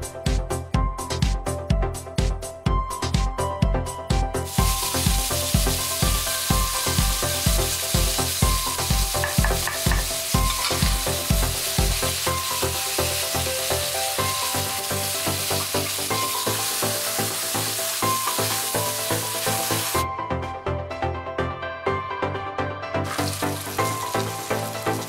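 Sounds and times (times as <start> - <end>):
oil sizzling in a wok: 4.4 - 20.0, 23.0 - 25.0.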